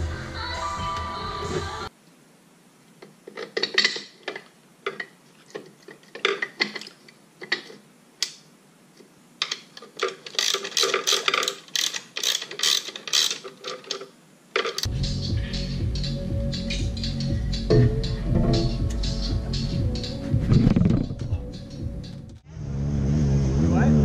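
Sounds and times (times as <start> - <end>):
metal parts knocking: 3.3 - 7.8, 9.4 - 14.9
socket ratchet clicking: 9.4 - 14.0.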